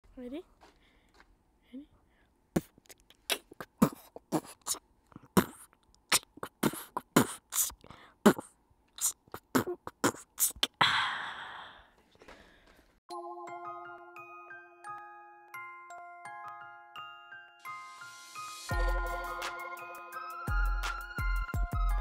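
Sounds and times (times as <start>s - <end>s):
person beatboxing: 2.6s - 10.8s.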